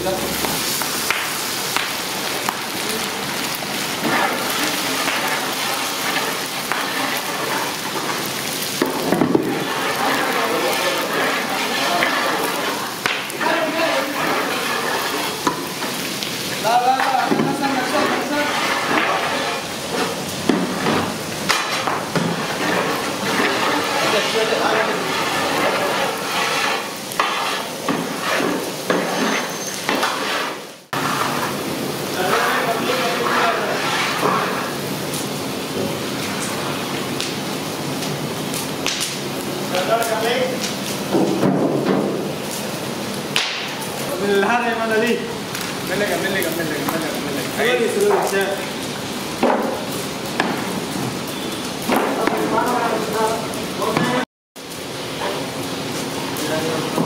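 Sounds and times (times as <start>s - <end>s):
chillies sizzling in hot oil: 0.0s - 57.0s
ladle stirring: 3.8s - 34.9s.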